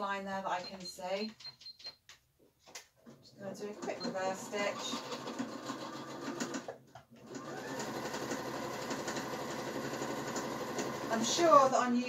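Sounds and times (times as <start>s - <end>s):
sewing machine stitching: 3.6s - 11.6s.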